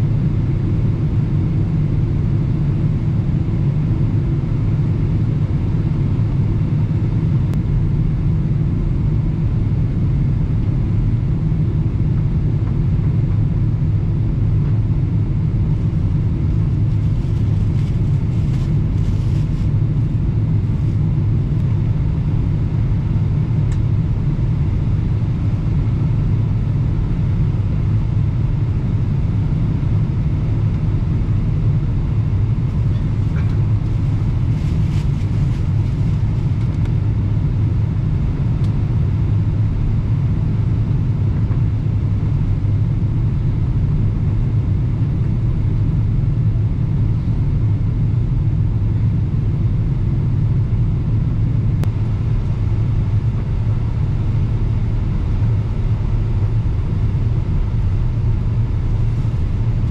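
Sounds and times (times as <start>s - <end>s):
airplane cabin drone: 0.0s - 59.9s.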